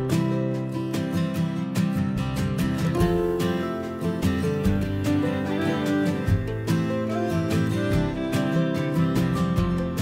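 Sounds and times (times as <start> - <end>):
strummed acoustic guitar music: 0.0 - 10.0.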